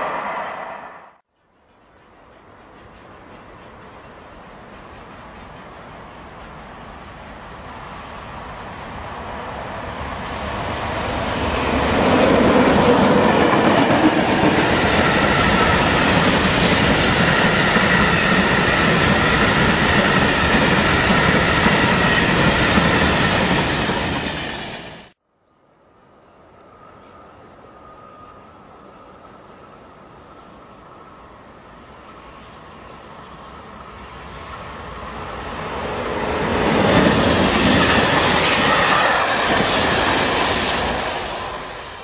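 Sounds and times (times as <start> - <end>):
freight train wheels on track: 2.2 - 25.2, 32.1 - 42.0
faint high ringing: 26.5 - 29.9.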